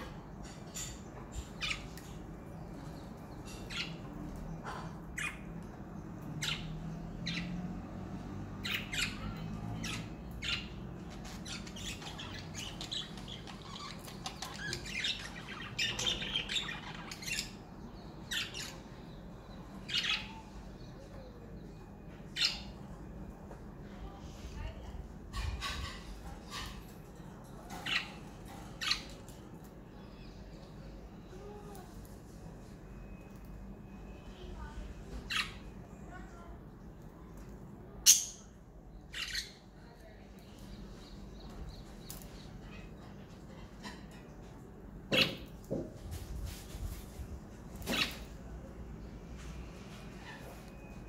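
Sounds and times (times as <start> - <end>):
budgerigars chirping and squawking: 0.0 - 7.7, 8.5 - 19.1, 19.8 - 20.6, 25.3 - 29.4, 39.1 - 39.6.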